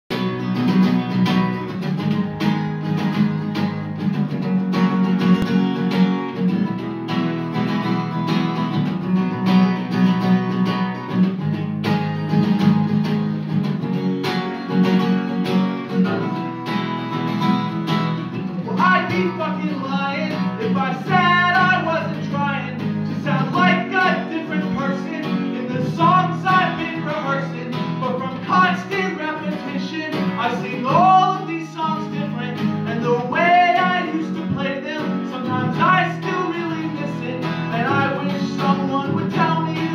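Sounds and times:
acoustic guitar strumming: 0:00.1 - 0:39.9
man singing: 0:18.5 - 0:39.9.

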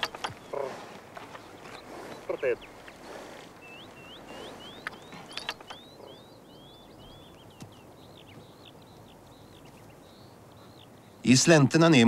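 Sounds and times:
sharp clicks and knocks: 0:00.0 - 0:00.4, 0:04.8 - 0:05.8
small birds chirping: 0:00.0 - 0:12.0.

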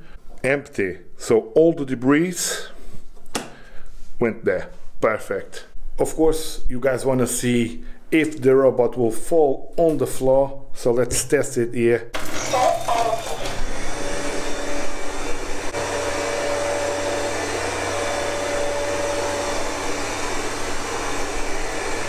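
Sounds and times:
robot vacuum fan whirring: 0:12.2 - 0:22.0.

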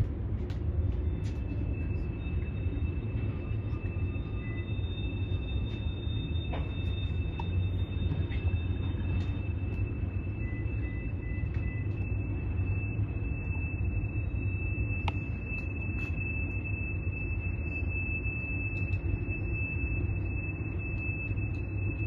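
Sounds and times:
low rumble: 0:00.0 - 0:22.0
high-pitched wheel squeal: 0:02.3 - 0:11.8.

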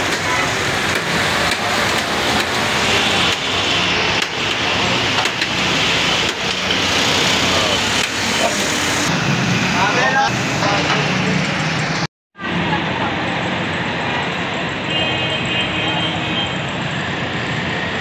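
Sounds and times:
loud outdoor background roar: 0:00.0 - 0:18.0.

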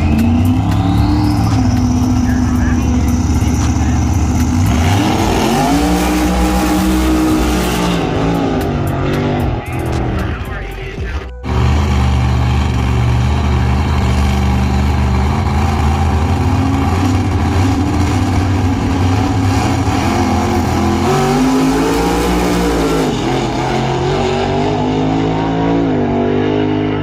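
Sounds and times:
race car engine idling and revving: 0:00.0 - 0:27.0.

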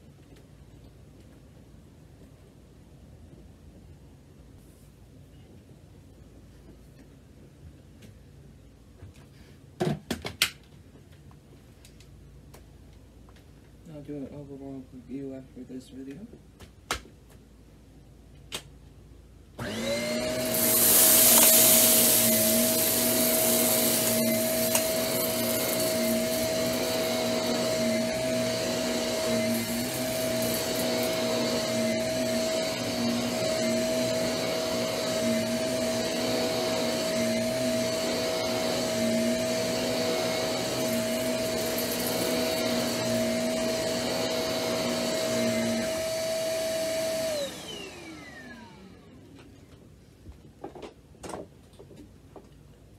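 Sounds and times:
vacuum cleaner running: 0:19.6 - 0:49.2.

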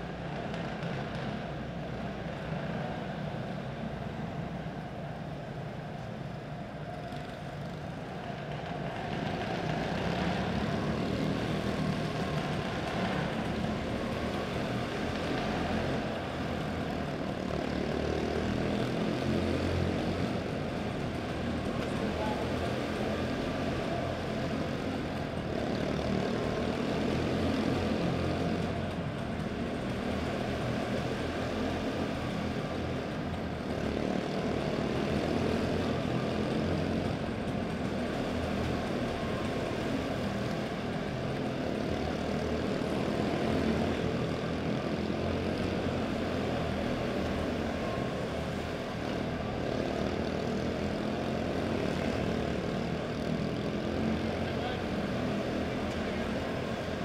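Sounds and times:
small race car engines buzzing: 0:00.0 - 0:57.0.

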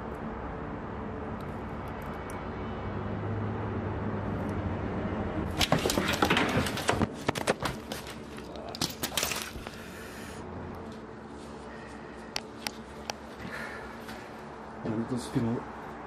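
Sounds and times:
steady low hum: 0:00.0 - 0:16.0
sharp cracks and knocks: 0:05.5 - 0:09.8.

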